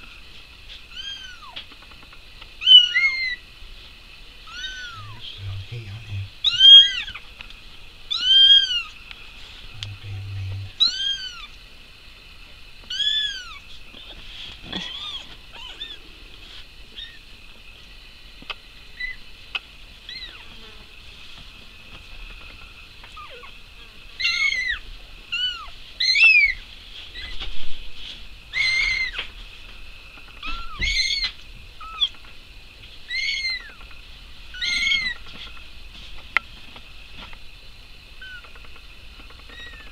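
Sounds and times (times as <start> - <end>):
kittens meowing: 0.9 - 1.6, 2.6 - 3.4, 4.4 - 5.3, 6.4 - 7.3, 8.1 - 9.0, 10.0 - 11.6, 12.9 - 13.6, 14.7 - 16.1, 16.9 - 17.3, 20.1 - 20.5, 23.1 - 23.6, 24.2 - 27.4, 28.5 - 29.3, 30.3 - 32.2, 33.1 - 33.8, 34.5 - 35.2, 38.2 - 38.6.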